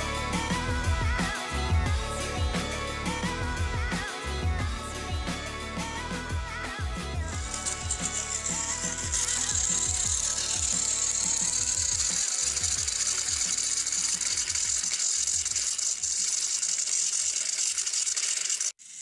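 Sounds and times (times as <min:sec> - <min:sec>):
toy train motors whining: 0:07.3 - 0:19.0
gearboxes clicking and ratcheting: 0:07.4 - 0:18.8.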